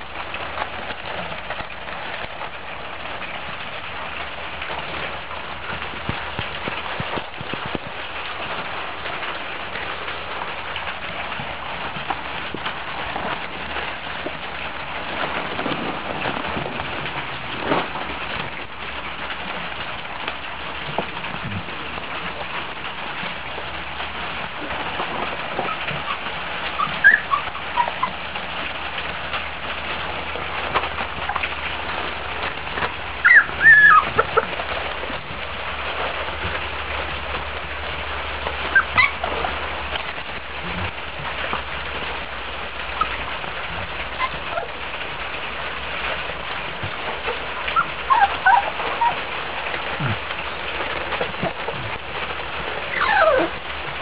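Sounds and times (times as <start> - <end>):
puppies whimpering and squealing: 24.7 - 28.4, 33.2 - 34.6, 38.7 - 39.3, 44.2 - 44.8, 47.7 - 49.2, 52.9 - 53.6.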